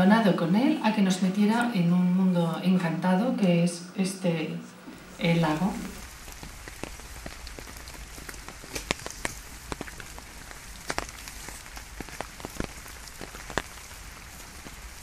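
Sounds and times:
steady rain falling: 4.8s - 15.0s.

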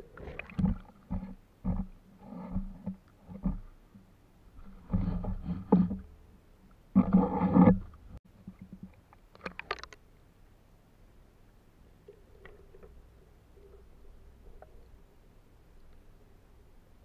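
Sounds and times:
muffled underwater rumbling and scraping: 0.0s - 3.9s, 4.5s - 6.3s, 6.9s - 8.9s.

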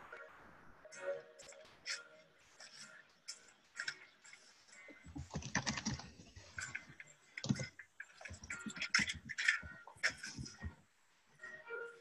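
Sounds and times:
computer keyboard typing: 5.1s - 6.8s, 7.4s - 9.4s.

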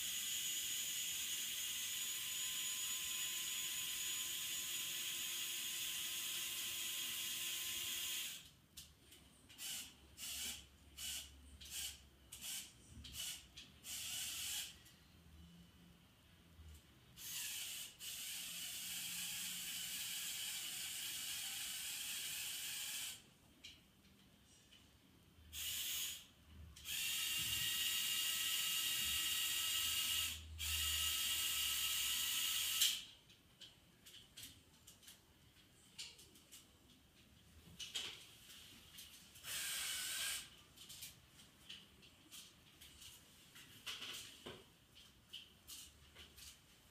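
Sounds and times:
electric motors and gears whirring: 0.0s - 8.5s, 9.5s - 14.9s, 17.2s - 23.2s, 25.5s - 33.1s, 39.4s - 40.6s.

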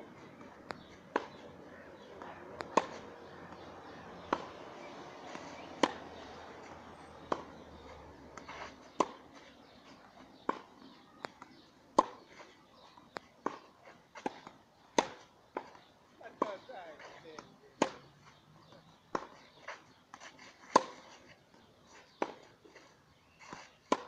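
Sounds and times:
tennis ball bouncing: 0.0s - 24.0s
tennis racket striking ball: 0.4s - 7.6s, 8.4s - 9.2s, 12.0s - 12.2s, 13.4s - 15.7s, 20.6s - 21.1s.

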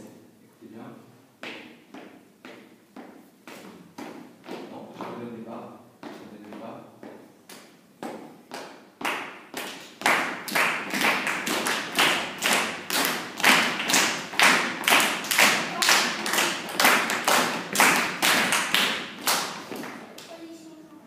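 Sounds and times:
group clapping in rhythm: 7.5s - 20.4s.

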